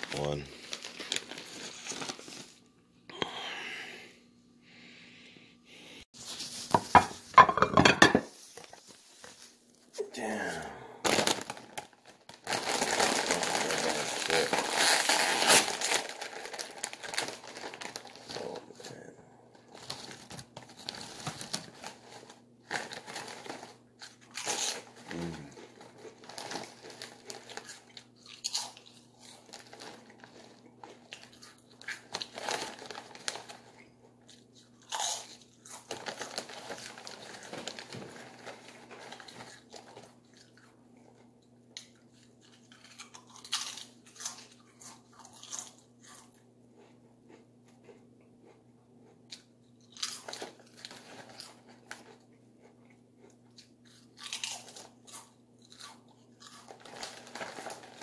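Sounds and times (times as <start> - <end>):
faint steady hum: 0.0 - 58.0
person chewing and crunching: 22.8 - 58.0.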